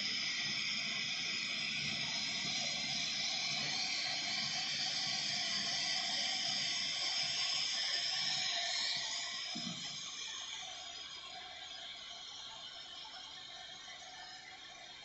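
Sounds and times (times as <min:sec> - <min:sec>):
steady hissing noise: 0:00.0 - 0:15.0.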